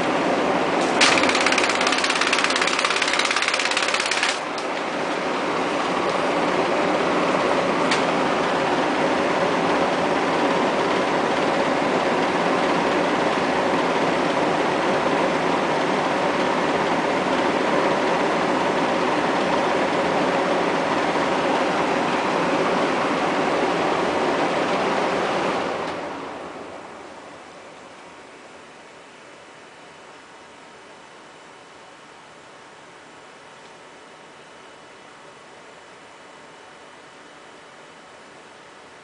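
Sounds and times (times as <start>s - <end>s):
electric fan running: 0.0s - 39.0s
fan switch turning: 0.8s - 5.3s, 7.8s - 8.2s.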